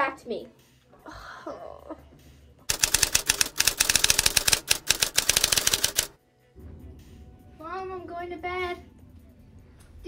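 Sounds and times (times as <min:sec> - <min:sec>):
typewriter key clicks: 0:02.7 - 0:06.1.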